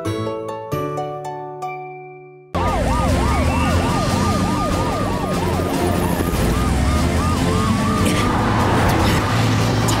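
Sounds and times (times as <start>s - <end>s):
emergency sirens wailing: 2.6s - 10.0s.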